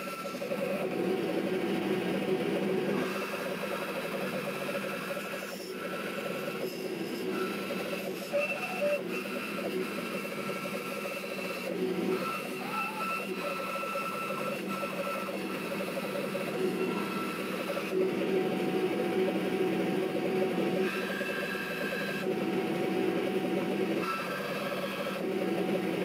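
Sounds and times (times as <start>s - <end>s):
bandsaw cutting: 2.9s - 18.0s.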